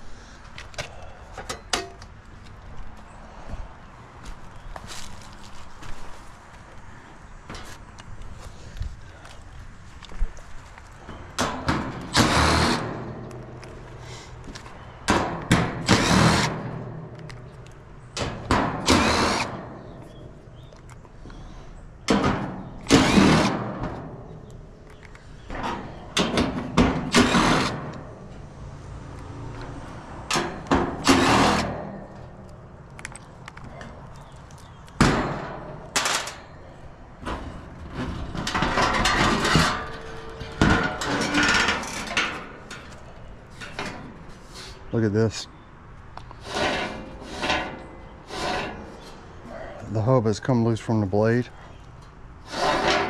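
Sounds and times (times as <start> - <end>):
tool and sheet metal clatter: 11.1 - 13.7, 15.1 - 17.6, 18.2 - 20.0, 22.1 - 24.3, 25.5 - 28.3, 30.3 - 32.3, 35.0 - 36.6, 37.2 - 44.5, 46.4 - 49.2, 52.5 - 53.0.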